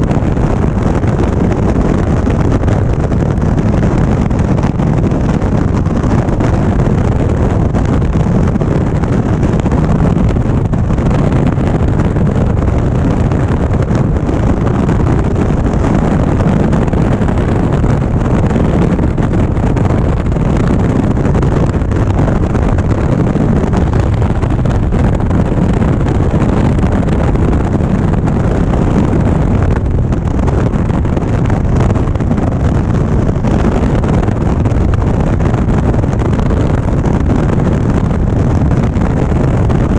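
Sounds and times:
wind noise on microphone: 0.0 - 39.9.

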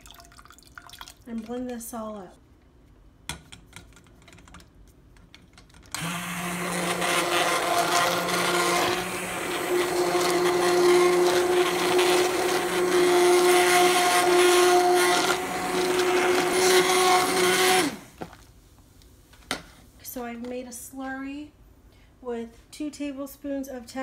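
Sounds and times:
immersion blender motor running: 6.0 - 18.1.

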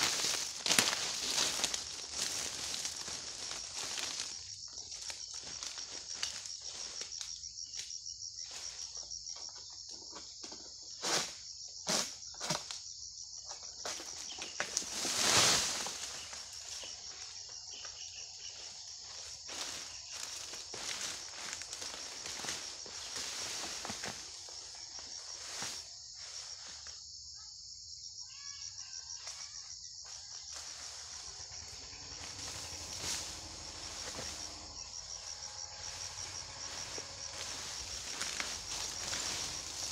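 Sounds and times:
sickle cutting sounds: 0.0 - 6.9, 11.0 - 12.7, 30.5 - 39.9
fruit bunch rustling through fronds: 0.0 - 7.0, 14.7 - 16.9, 19.0 - 24.6, 30.5 - 39.9
insects chirring: 0.0 - 39.9.

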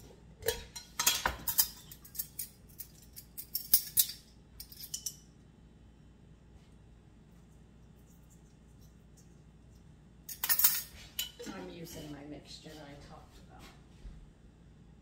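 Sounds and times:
metal measuring spoons clinking: 0.4 - 5.3, 10.3 - 11.6.

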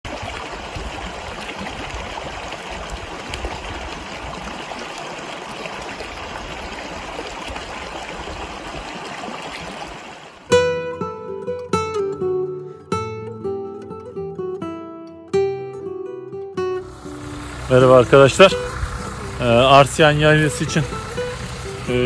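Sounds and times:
stream running over rocks: 0.0 - 10.6, 16.8 - 22.0.

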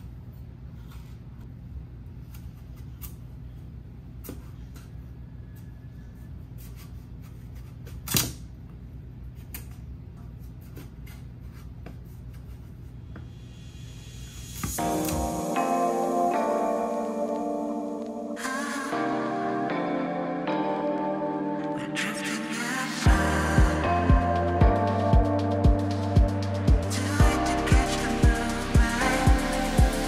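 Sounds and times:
low hum: 22.6 - 30.0.

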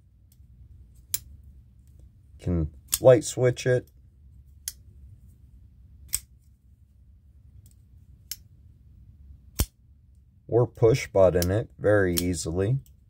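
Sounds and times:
knife blade snapping open and closed: 6.1 - 6.3.

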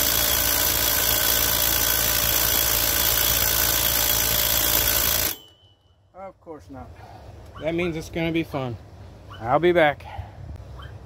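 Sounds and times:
impact driver hammering: 0.0 - 5.5.

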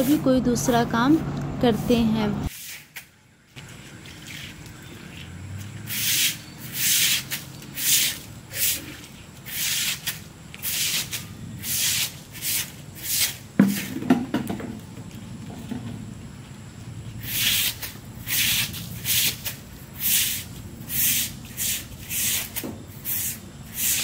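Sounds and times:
broom sweeping wet concrete: 1.7 - 14.1, 17.2 - 24.0.

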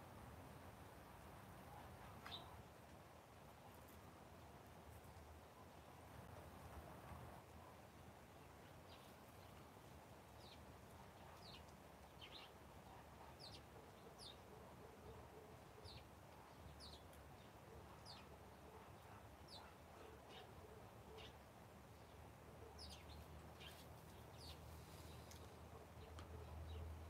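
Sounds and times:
small bird chirping: 2.2 - 2.6, 10.4 - 18.4, 22.0 - 26.5.

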